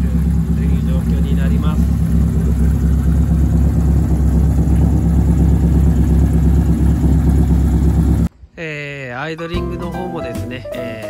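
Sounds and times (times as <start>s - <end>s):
car engine idling: 0.0s - 8.3s.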